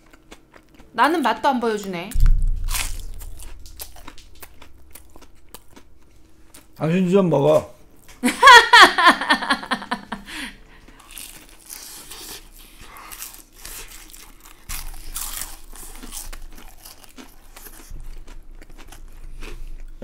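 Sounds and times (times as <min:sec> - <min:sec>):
crinkling and tearing fish: 0:10.8 - 0:20.0.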